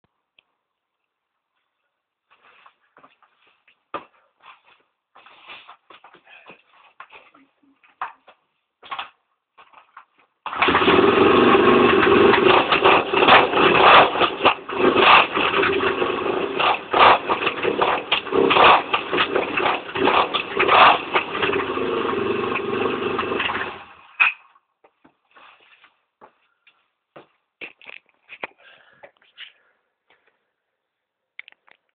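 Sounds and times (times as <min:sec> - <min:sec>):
motorcycle engine revving: 0:10.5 - 0:24.0.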